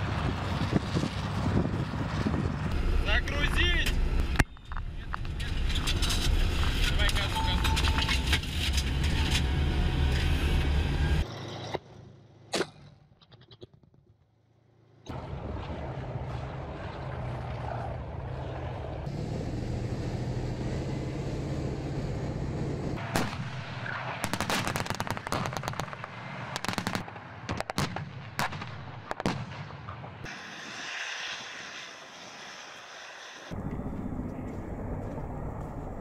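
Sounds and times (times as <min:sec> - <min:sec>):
tank engine droning: 0:00.0 - 0:13.0, 0:14.5 - 0:24.3, 0:30.3 - 0:36.0
sharp gunshots: 0:23.0 - 0:30.2.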